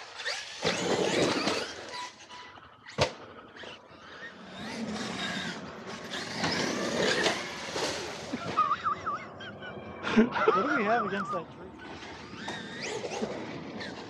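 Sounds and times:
tyres scrabbling on dirt: 0.2 - 3.0, 3.6 - 8.8
electric motor whine: 3.5 - 9.2.

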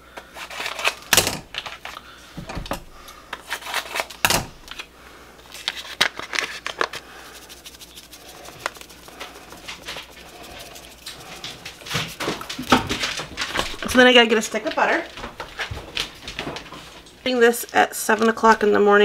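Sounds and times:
seasoning packet crinkling and tearing: 5.6 - 12.8.

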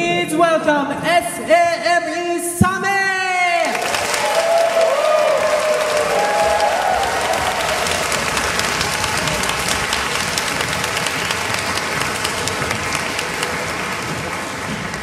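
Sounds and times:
audience applauding: 3.6 - 15.0.

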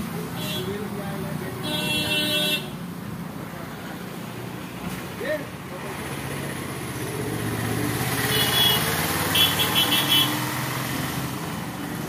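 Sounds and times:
motor vehicle passing: 5.7 - 12.0.

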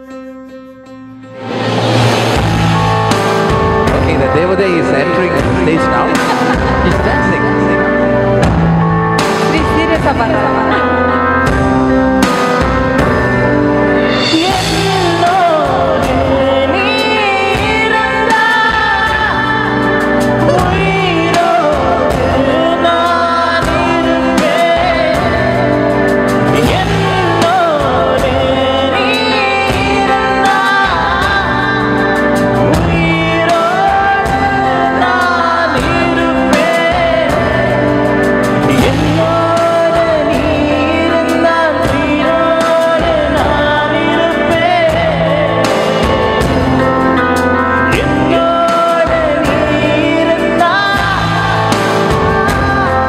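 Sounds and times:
backing chords and steady beat: 0.0 - 53.0
man singing through pa system: 14.2 - 46.6, 47.2 - 53.0.

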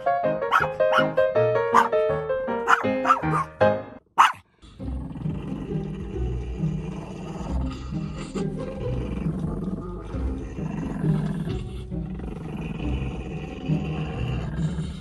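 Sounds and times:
background music: 0.0 - 4.0, 4.6 - 15.0
small dogs growling: 4.7 - 15.0.

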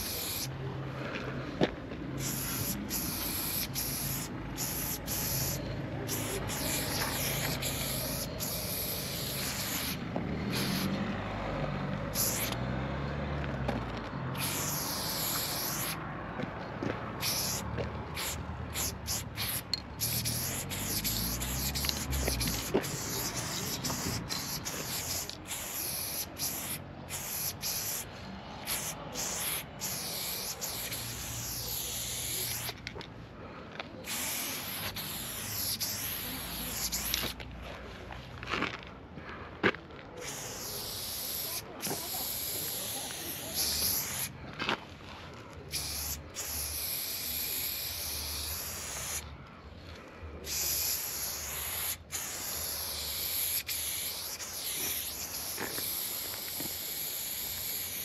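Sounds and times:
spray paint can hissing: 0.0 - 0.6, 2.1 - 11.0, 12.0 - 12.6, 14.3 - 16.0, 17.1 - 32.9, 34.0 - 37.5, 40.2 - 44.4, 45.7 - 49.3, 50.4 - 58.0.

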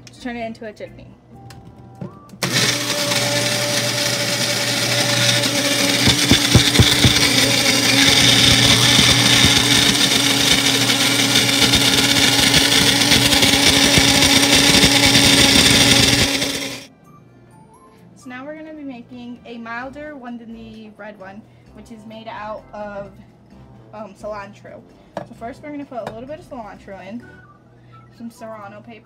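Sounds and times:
blender motor running: 2.4 - 16.9.

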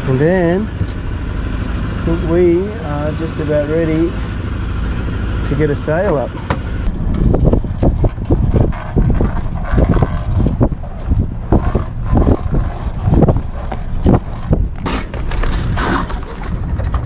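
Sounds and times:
outboard motor running: 0.0 - 17.0
wind buffeting microphone: 6.0 - 17.0
sail flapping and rustling: 6.9 - 17.0.

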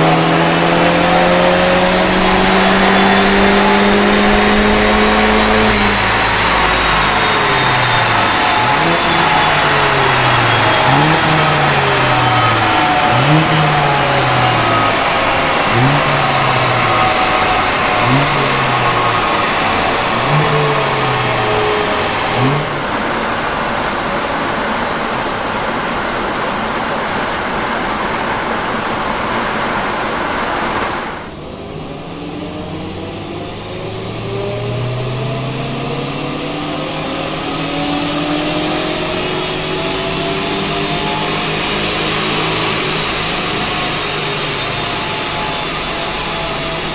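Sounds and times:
car engine revving on dynamometer: 0.0 - 46.9.

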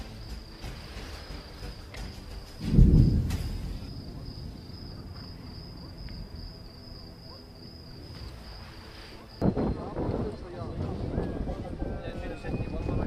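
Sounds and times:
crickets chirring: 0.0 - 13.0
explosion boom: 2.6 - 6.5.

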